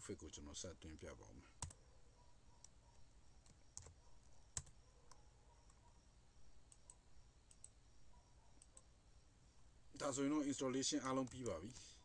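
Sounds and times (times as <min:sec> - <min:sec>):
computer keyboard and mouse clicks: 0:03.4 - 0:05.8, 0:06.7 - 0:07.8, 0:11.2 - 0:11.9.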